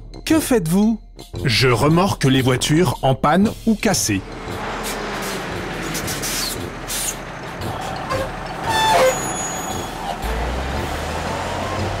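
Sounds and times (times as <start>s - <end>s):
cartoon engine and road noise: 3.5s - 12.0s.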